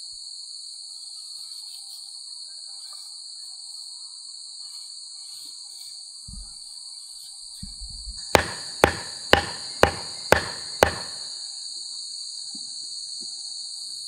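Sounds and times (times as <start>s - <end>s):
high buzz of insects: 0.3s - 7.8s, 8.4s - 14.0s
knife struck into wooden plank: 8.4s - 11.2s.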